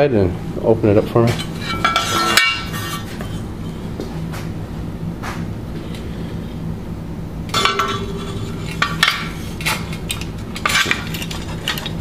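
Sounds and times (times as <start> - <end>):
steady low hum: 0.0 - 12.0
metal clinking and rattling: 7.5 - 12.0.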